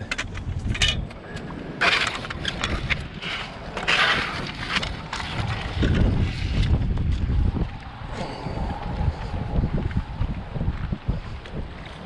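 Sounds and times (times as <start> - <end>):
fishing gear scraping on concrete: 0.0 - 7.0
wind rumble on microphone: 0.0 - 12.0.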